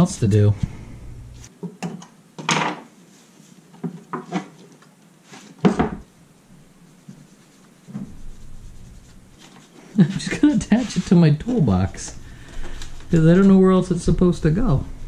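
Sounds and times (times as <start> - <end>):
objects knocking on wooden workbench: 5.6 - 6.0.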